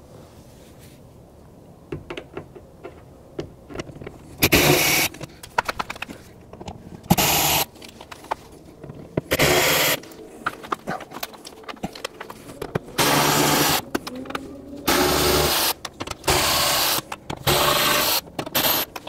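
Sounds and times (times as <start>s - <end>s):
power driver whirring: 12.7s - 19.0s.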